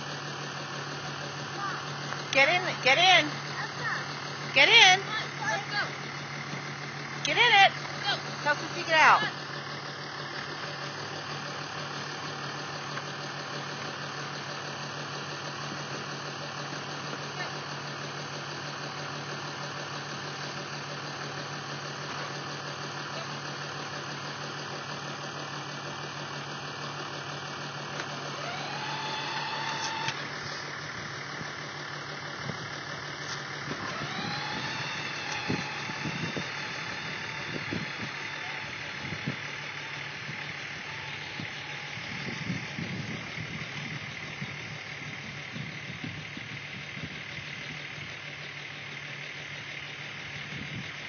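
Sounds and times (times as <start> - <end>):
toy car motor whine: 28.2 - 30.3, 33.7 - 39.9.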